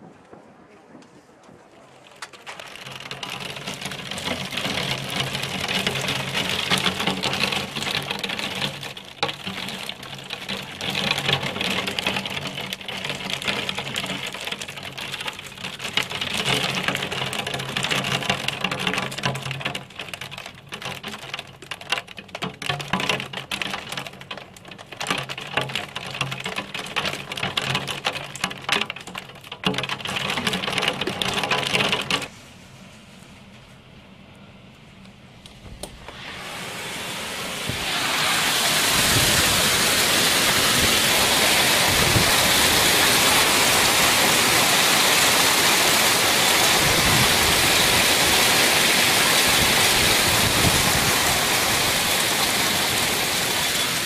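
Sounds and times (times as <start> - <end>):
hail clattering on window glass: 2.1 - 32.3, 37.7 - 54.0
steady low hum: 32.3 - 45.3.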